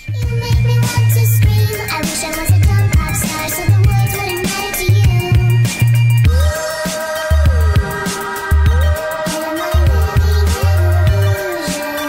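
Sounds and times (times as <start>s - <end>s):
deep blocky bass notes: 0.0s - 11.7s
sliding synth line: 0.7s - 12.0s
sharp percussion hits: 0.8s - 12.0s.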